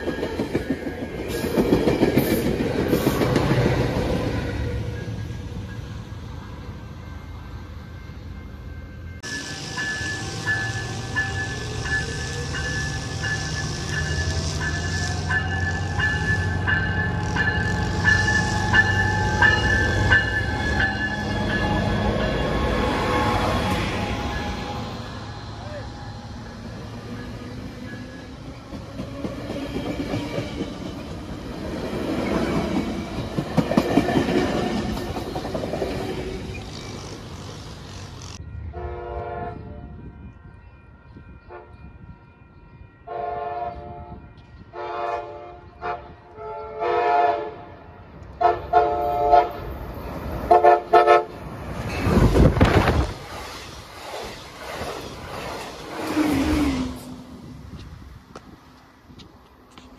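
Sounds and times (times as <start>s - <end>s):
train cars rumbling on rails: 0.0s - 59.9s
train horn blasts: 38.6s - 40.2s, 43.0s - 49.7s, 50.5s - 51.4s.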